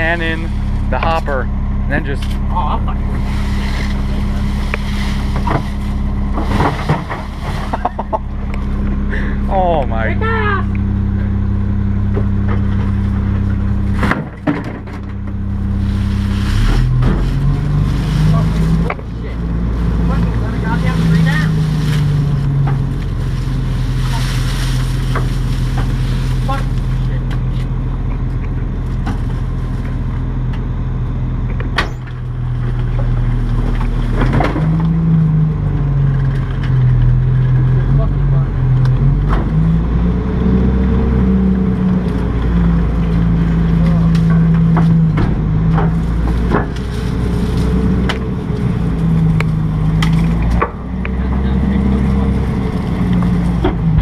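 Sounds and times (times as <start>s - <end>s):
garbage truck humming: 0.0s - 54.0s
brush cracking and splintering: 2.2s - 8.7s, 15.1s - 30.3s, 41.6s - 54.0s.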